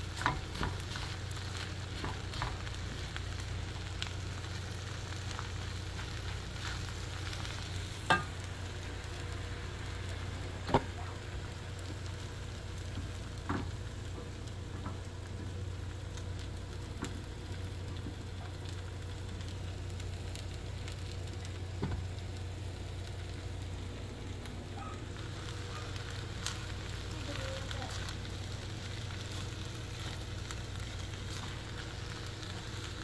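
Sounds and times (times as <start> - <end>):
shrimp sizzling in hot oil: 0.0 - 33.0.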